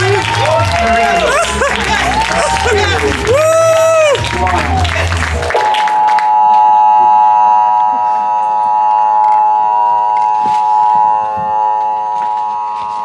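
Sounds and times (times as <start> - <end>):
loud steady held tone: 5.6 - 13.0.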